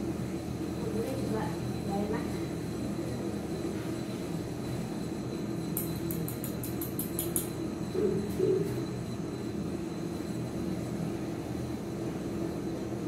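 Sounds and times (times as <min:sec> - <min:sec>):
gas torch burning: 0:00.0 - 0:13.0.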